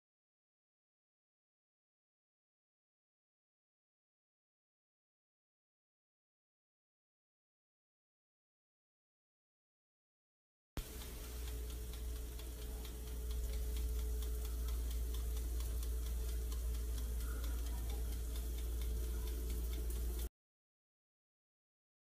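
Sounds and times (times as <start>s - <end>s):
electric oven humming: 10.8s - 20.3s
oven timer ticking: 10.8s - 20.3s.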